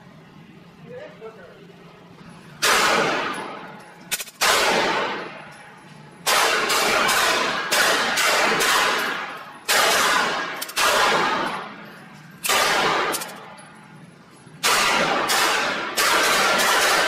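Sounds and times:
pistol shots echoing: 0:02.6 - 0:05.4, 0:06.2 - 0:11.7, 0:12.4 - 0:13.4, 0:14.6 - 0:17.0.

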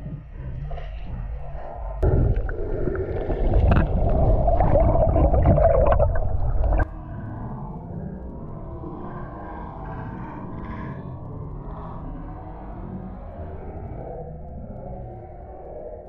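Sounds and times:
steady underwater rumble: 0:00.0 - 0:16.0
underwater gurgling wash: 0:00.8 - 0:07.0.

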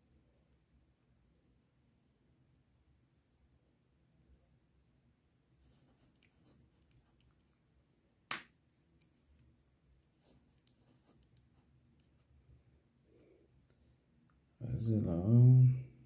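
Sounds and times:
pen scratching on paper: 0:10.2 - 0:12.3.

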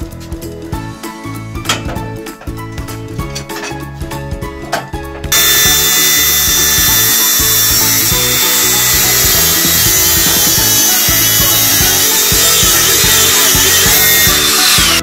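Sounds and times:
background music: 0:00.0 - 0:15.0
angle grinder cutting cables: 0:05.3 - 0:15.0.

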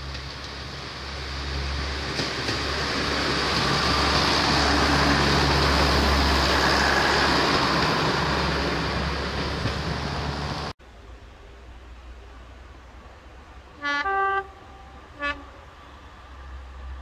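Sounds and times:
train wheels rumbling on rails: 0:00.0 - 0:10.7
diesel train engine humming: 0:00.0 - 0:17.0.

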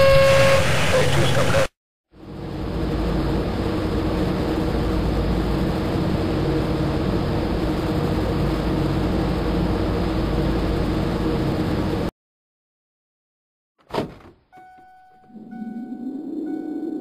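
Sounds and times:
aircraft engines running: 0:00.9 - 0:12.1.

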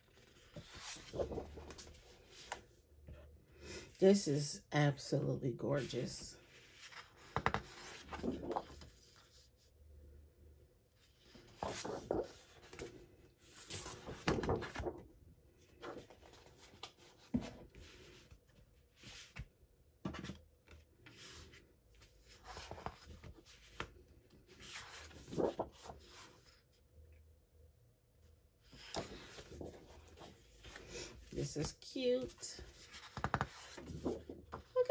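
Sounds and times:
paper swishing and rustling: 0:00.2 - 0:02.7, 0:06.6 - 0:09.3, 0:11.3 - 0:15.0, 0:24.6 - 0:26.6, 0:28.7 - 0:31.2.

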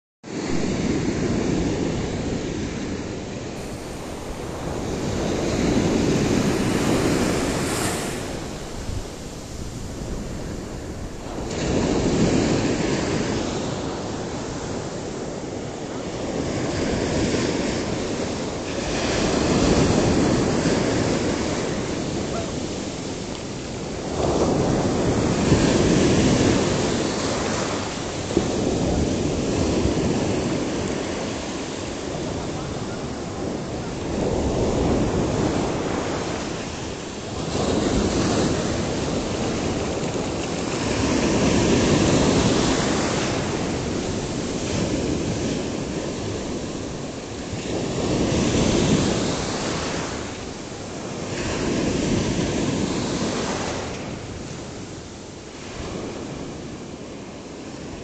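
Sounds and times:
waves washing onto pebble beach: 0:03.5 - 0:15.6
wind buffeting microphone: 0:03.6 - 0:15.5.

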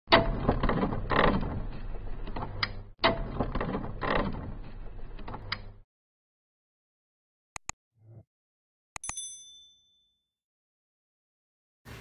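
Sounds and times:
metallic clanks and creaks: 0:00.1 - 0:05.8.

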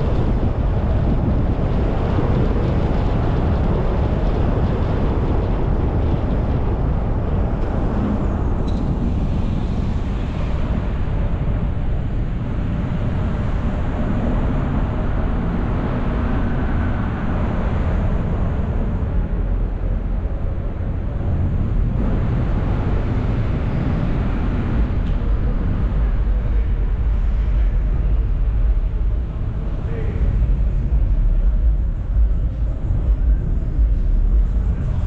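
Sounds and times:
car road and wind noise: 0:00.0 - 0:35.0.

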